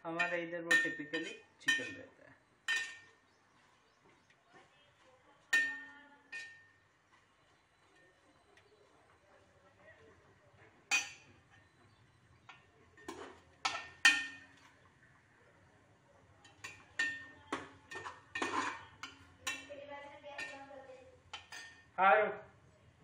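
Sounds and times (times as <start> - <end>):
spoon scraping metal pot: 10.9 - 14.9, 16.4 - 19.8, 20.4 - 21.9.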